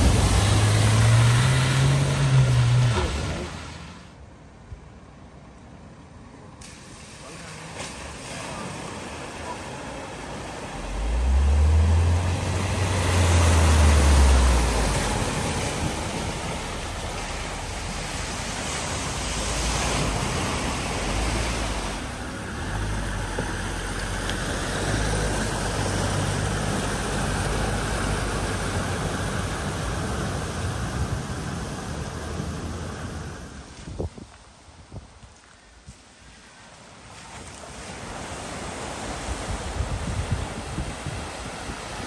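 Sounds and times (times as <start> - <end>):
low engine rumble: 0.0 - 4.1, 9.2 - 33.8
water splashing from vehicle wheels: 0.0 - 4.1, 6.6 - 34.6.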